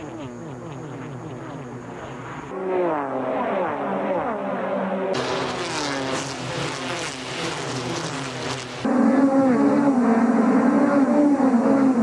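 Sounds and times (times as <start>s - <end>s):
race cars racing past: 2.7s - 9.2s.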